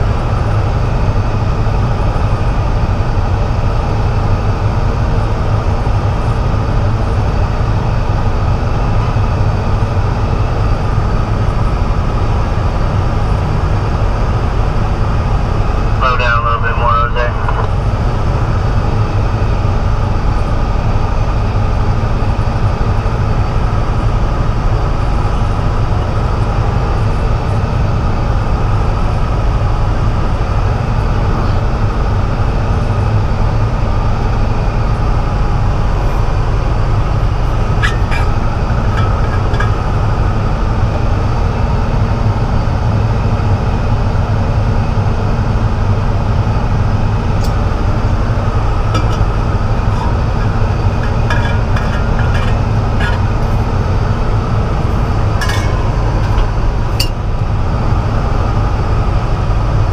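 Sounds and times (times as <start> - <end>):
cab and road noise: 0.0 - 59.9
truck diesel engine running: 0.0 - 59.9.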